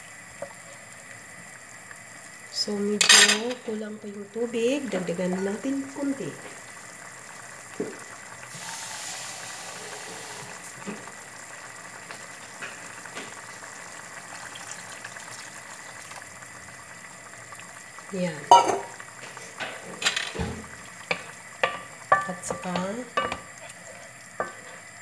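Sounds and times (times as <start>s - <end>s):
low sizzle: 0.0s - 25.0s
water pouring into a pan: 0.0s - 25.0s.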